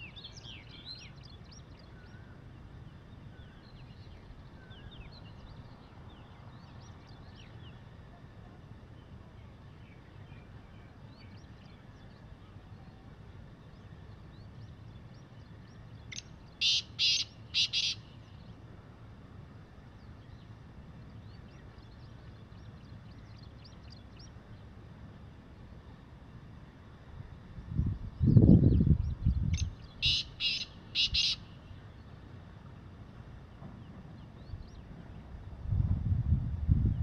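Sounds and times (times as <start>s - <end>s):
francolin calling: 14.1s - 18.6s, 29.4s - 32.2s
faint small bird chirps: 27.8s - 31.5s.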